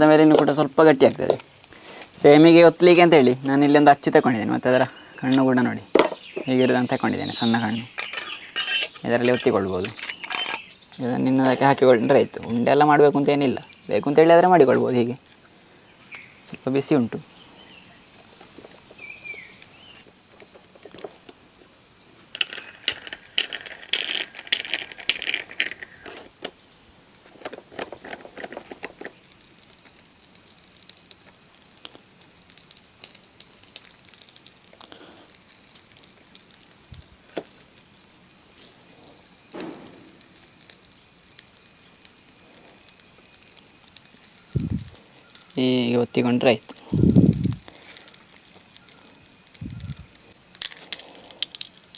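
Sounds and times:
faint insect buzz: 0:00.0 - 0:23.4, 0:25.1 - 0:51.9
metal press clinking and rattling: 0:08.0 - 0:10.7, 0:22.4 - 0:26.6, 0:27.4 - 0:29.2.

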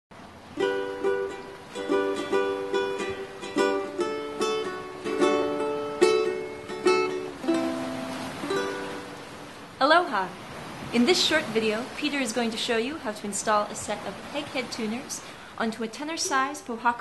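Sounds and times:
ukulele strumming chords: 0:00.5 - 0:10.2.

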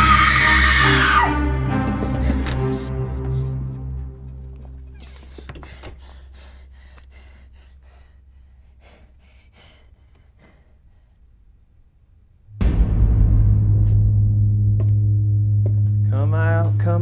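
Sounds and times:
man panting: 0:01.6 - 0:04.3, 0:04.9 - 0:11.4
low musical drone: 0:12.6 - 0:17.0.

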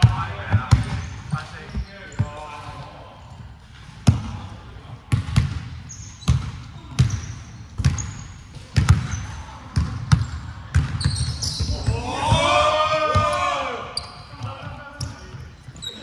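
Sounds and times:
sneaker squeaks: 0:00.0 - 0:02.6, 0:05.8 - 0:12.4, 0:13.9 - 0:16.0
basketballs bouncing on wooden court: 0:00.0 - 0:16.0.

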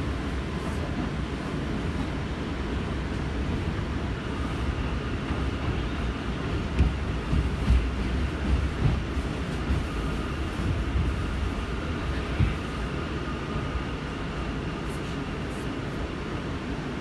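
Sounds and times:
train wheels rumbling on rail: 0:00.0 - 0:17.0
train thump: 0:05.2 - 0:12.7.

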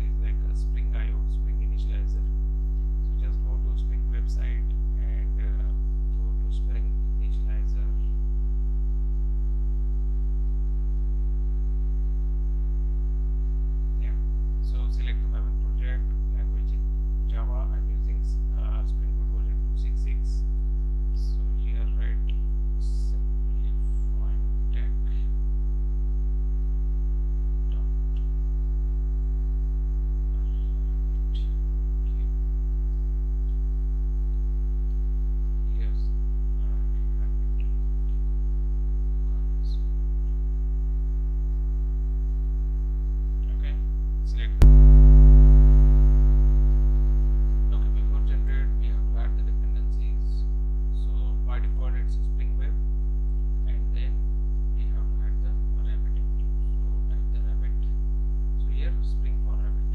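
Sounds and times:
electrical mains hum: 0:00.0 - 0:59.9
faint spoken word: 0:03.0 - 0:08.2, 0:21.2 - 0:25.4, 0:30.2 - 0:32.4, 0:35.6 - 0:37.8, 0:43.4 - 0:44.6, 0:47.7 - 0:52.8, 0:53.6 - 0:54.2, 0:54.8 - 0:58.0, 0:58.6 - 0:59.9.

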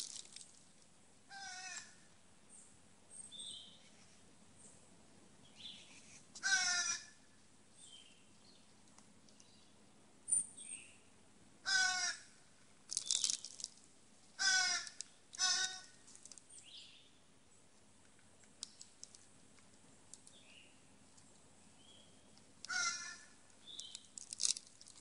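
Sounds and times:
crow cawing: 0:01.3 - 0:02.0, 0:06.4 - 0:07.2, 0:11.6 - 0:12.4, 0:14.4 - 0:16.0, 0:22.6 - 0:23.4.

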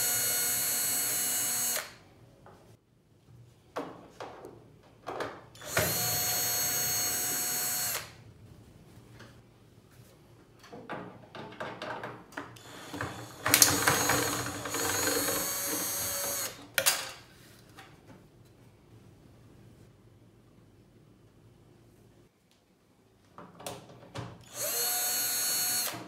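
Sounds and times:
cordless drill running: 0:00.0 - 0:02.0, 0:05.6 - 0:08.2, 0:12.6 - 0:16.6, 0:24.5 - 0:26.0.

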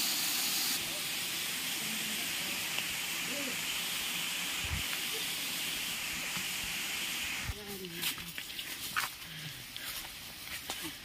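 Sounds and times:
small waterfall rushing: 0:00.0 - 0:07.6.

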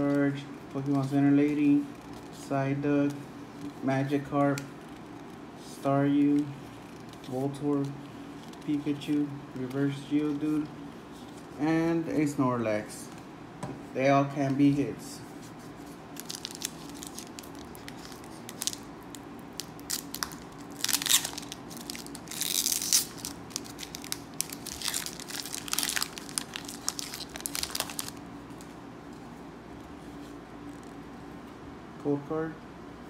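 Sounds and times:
wrapper crinkling and tearing: 0:16.1 - 0:28.7.

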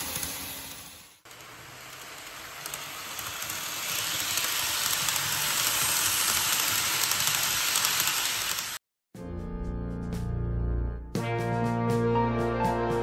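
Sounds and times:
model train running on track: 0:00.0 - 0:08.8.

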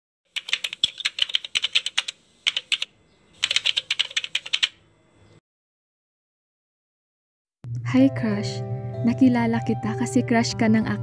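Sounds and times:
keyboard typing clicks: 0:00.4 - 0:04.8.

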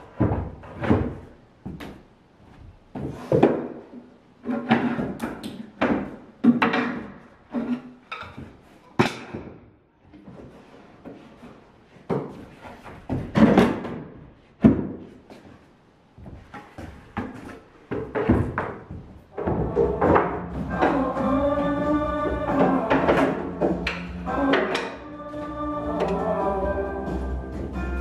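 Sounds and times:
wooden boards knocking: 0:16.6 - 0:25.0.

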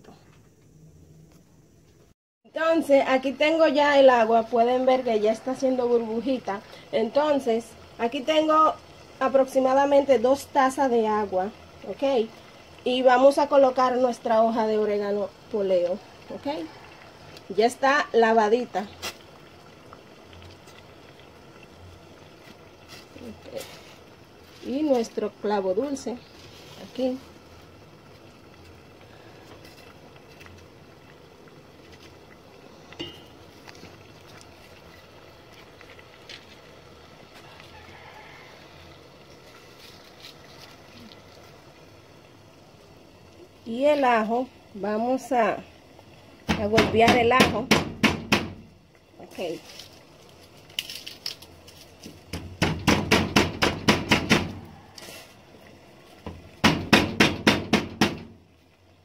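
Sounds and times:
garlic being crushed with knocks: 0:52.0 - 0:54.6.

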